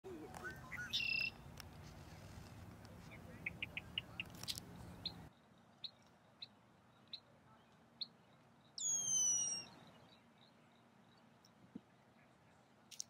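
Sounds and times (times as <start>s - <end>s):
descending whistled bird call: 0.4s - 1.4s, 8.8s - 10.2s.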